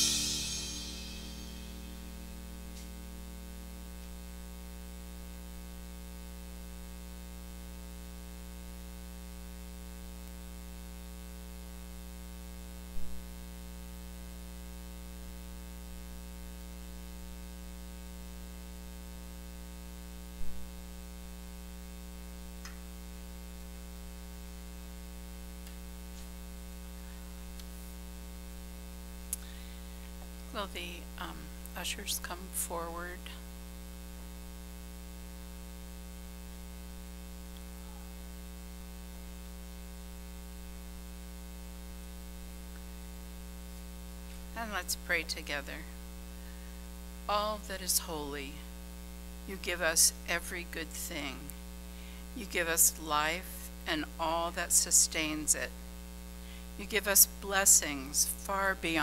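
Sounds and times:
faint hiss: 0.0 - 3.8
electrical mains hum: 0.0 - 59.0.

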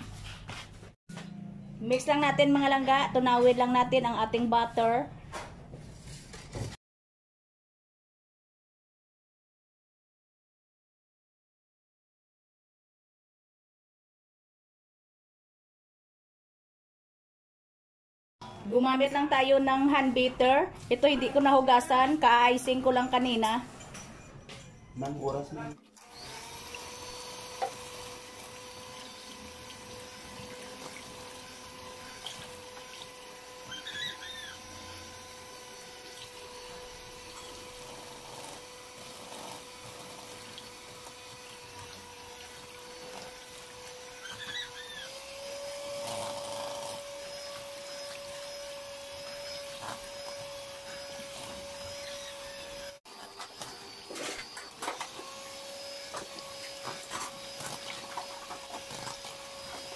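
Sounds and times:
electric hand mixer whirring: 25.9 - 59.9.

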